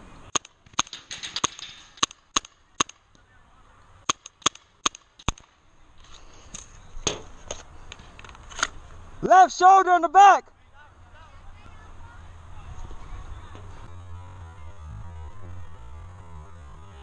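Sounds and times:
paintball marker shots: 0.3s - 3.2s, 4.0s - 5.6s.

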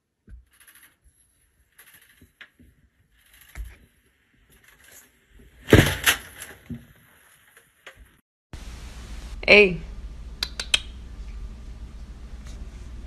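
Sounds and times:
loud crinkling bump: 5.6s - 8.1s.

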